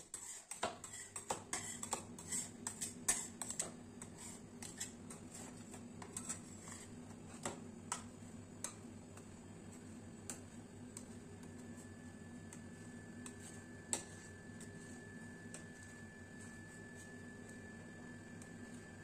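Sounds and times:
metal spatulas tapping and scraping: 0.0s - 11.5s, 13.2s - 14.8s
faint steady hum: 0.0s - 19.0s.

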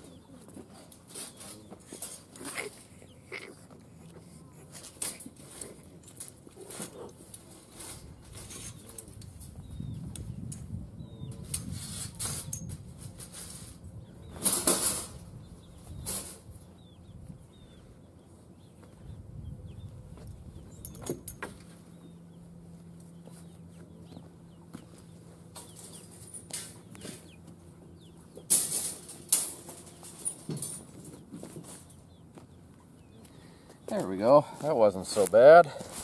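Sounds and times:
wire cages rattling and clanking: 0.0s - 3.6s, 4.6s - 16.9s, 20.3s - 22.1s, 24.1s - 32.3s
chickens clucking: 0.0s - 20.9s, 21.6s - 36.0s.

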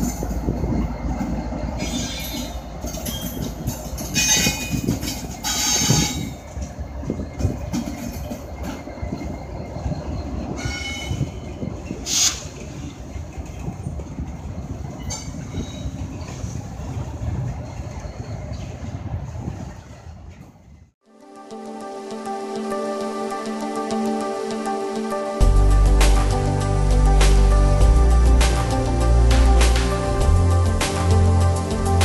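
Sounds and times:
wheel squeal: 0.0s - 20.0s
freight train rumbling past: 0.0s - 21.0s, 21.6s - 32.0s.

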